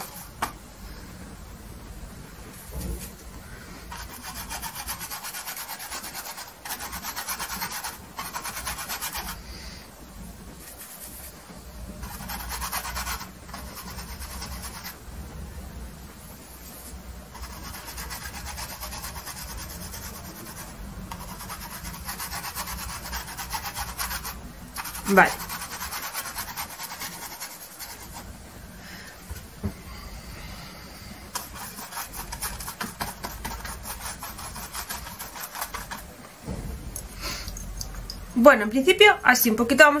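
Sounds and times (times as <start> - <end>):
paintbrush scrubbing canvas: 0.0 - 0.4, 3.9 - 9.5, 10.6 - 15.0, 16.4 - 28.4, 31.3 - 36.1.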